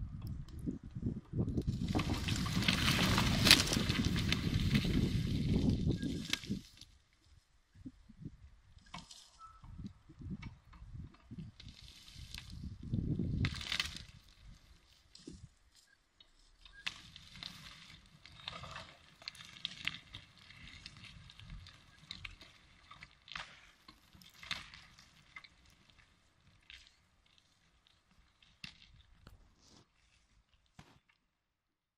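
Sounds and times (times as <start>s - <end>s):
log tumbling down a slope: 1.6s - 6.8s
twigs snapping: 1.6s - 6.8s, 13.4s - 14.3s.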